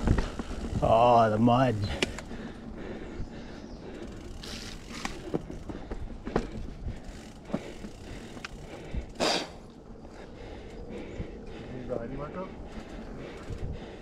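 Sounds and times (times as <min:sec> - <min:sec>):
bike tyres rumbling on dirt: 0:00.0 - 0:03.1, 0:04.0 - 0:09.5
bike rattling over bumps: 0:00.0 - 0:14.0.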